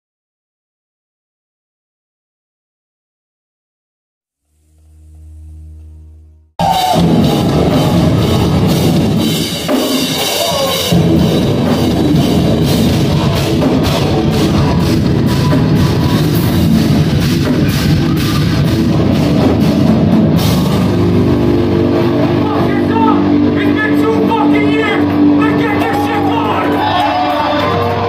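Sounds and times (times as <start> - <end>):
bass guitar: 4.4 - 28.0
distorted electric guitars: 4.5 - 28.0
drum kit with rapid cymbal hits: 6.6 - 28.0.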